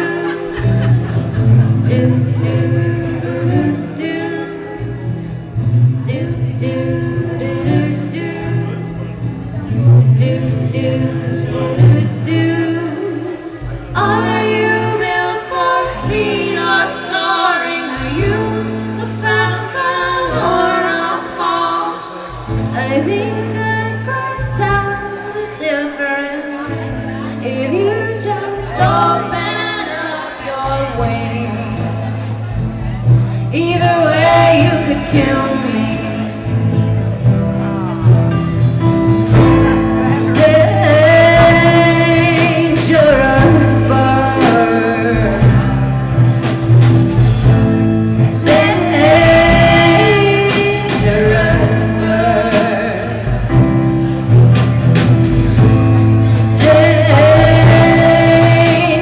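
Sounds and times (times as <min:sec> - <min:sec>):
live band playing: 0:00.0 - 0:59.0
voices singing: 0:33.5 - 0:37.1, 0:39.4 - 0:46.6, 0:48.2 - 0:53.7, 0:55.6 - 0:59.0.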